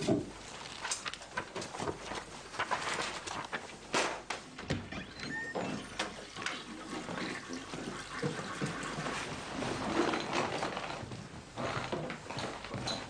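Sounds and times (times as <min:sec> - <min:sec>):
water running and splashing: 0:06.2 - 0:09.6.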